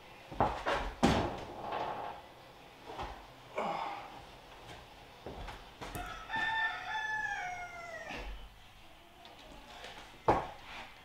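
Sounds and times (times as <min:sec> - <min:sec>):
rooster crowing: 0:06.0 - 0:08.4.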